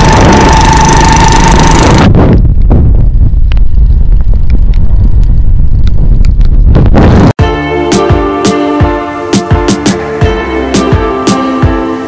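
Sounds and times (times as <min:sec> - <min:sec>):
motorcycle engine whine: 0:00.0 - 0:07.2
wind blasting microphone: 0:00.0 - 0:07.4.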